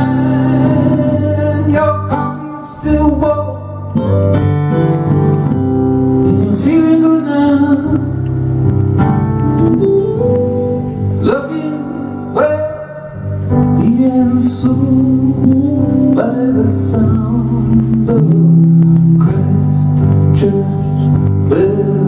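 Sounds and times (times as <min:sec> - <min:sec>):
man singing: 0:00.0 - 0:04.2, 0:06.2 - 0:08.6, 0:11.2 - 0:22.0
electric guitar: 0:00.0 - 0:22.0
keyboard: 0:00.0 - 0:22.0.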